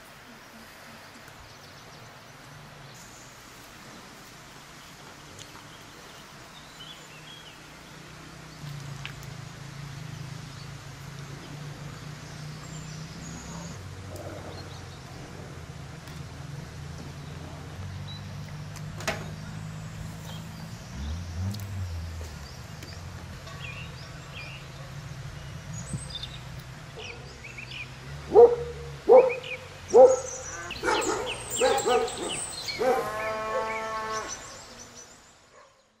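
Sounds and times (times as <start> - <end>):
small birds chirping: 1.1 - 36.0
farm animal calling: 29.1 - 34.8.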